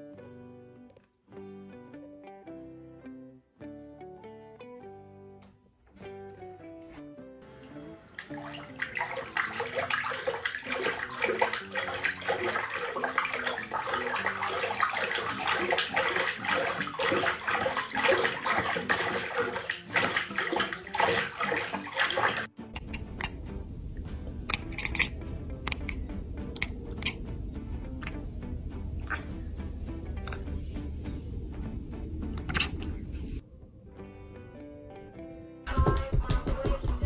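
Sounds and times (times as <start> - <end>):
soft plucked guitar music: 0.0 - 37.0
cat splashing water: 7.5 - 23.5, 24.3 - 27.2
tap running into bathtub: 7.6 - 23.3.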